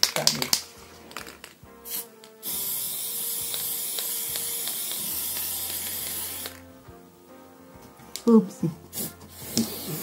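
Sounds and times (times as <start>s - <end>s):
spray can hissing: 1.8s - 6.7s, 8.9s - 10.0s.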